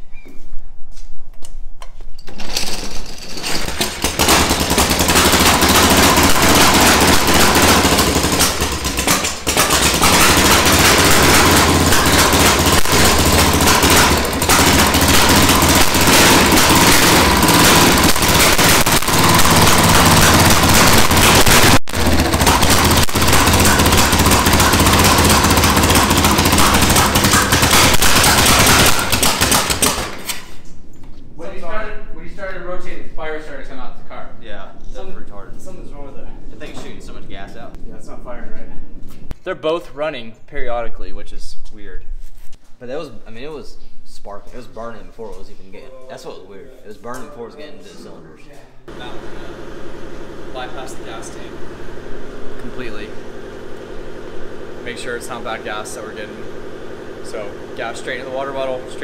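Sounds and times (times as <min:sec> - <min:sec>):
motorcycle kick-start: 0:02.4 - 0:30.6
motorcycle engine running rough: 0:03.6 - 0:30.2, 0:48.9 - 0:59.0.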